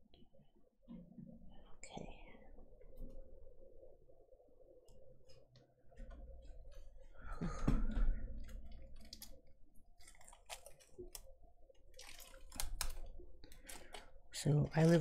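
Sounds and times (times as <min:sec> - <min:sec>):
plastic bag crinkling: 0:08.7 - 0:15.0.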